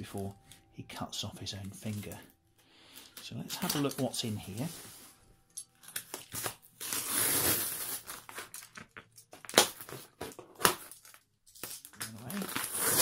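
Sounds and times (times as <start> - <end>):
packing tape tearing: 5.8 - 13.0
utility knife slitting tape: 12.5 - 13.0.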